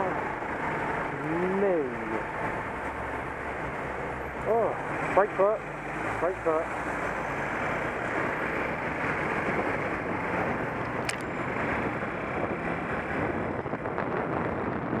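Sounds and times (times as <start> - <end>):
wind rushing over microphone: 6.8 - 15.0.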